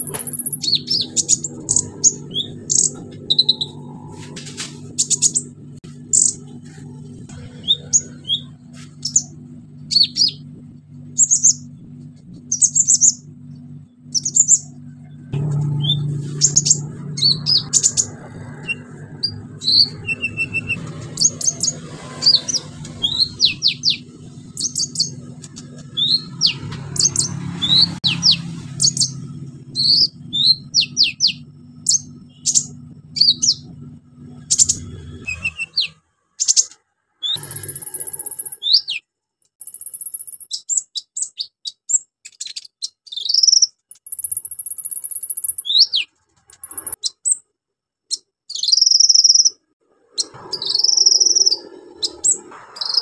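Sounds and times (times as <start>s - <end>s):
bird chirping and trilling: 0.0s - 4.2s, 4.8s - 6.5s, 7.4s - 10.5s, 11.1s - 14.8s, 15.4s - 47.4s, 48.1s - 53.0s
rushing background noise: 0.0s - 35.9s
steady low hum: 0.0s - 36.0s.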